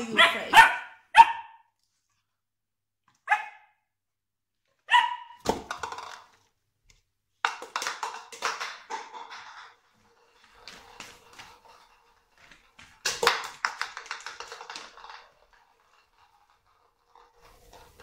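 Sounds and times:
puppy barking: 0.0s - 1.7s, 3.2s - 3.8s, 4.9s - 5.4s.

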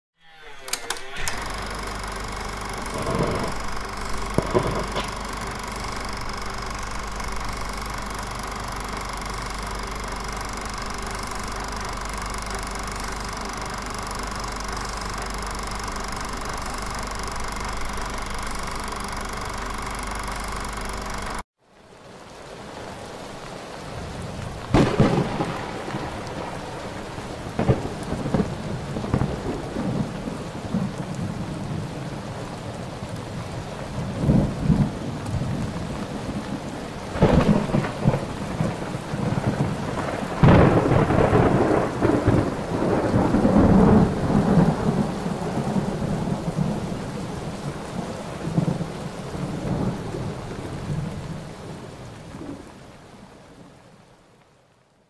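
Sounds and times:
steady rain falling: 0.6s - 55.0s
thunder rumbling and cracking: 1.3s - 9.3s, 24.0s - 32.2s, 34.0s - 51.8s.

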